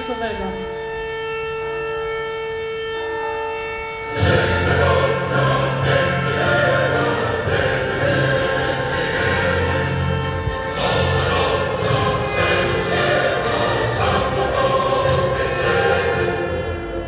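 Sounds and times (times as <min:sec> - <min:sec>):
steady held note: 0:00.0 - 0:17.0
choir singing solemn music: 0:04.0 - 0:17.0.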